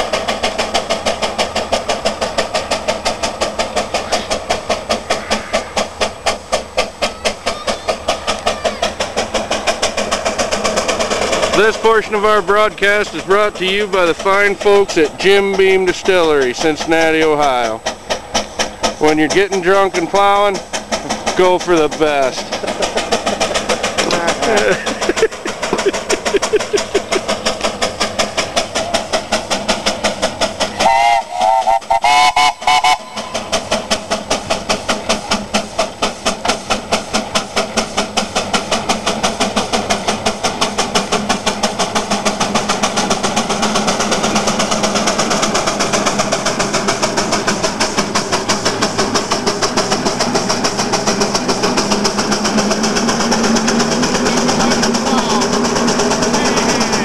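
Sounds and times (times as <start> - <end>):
steam engine exhaust chuffs: 0.0 - 57.0
steam whistle toots: 30.7 - 33.6.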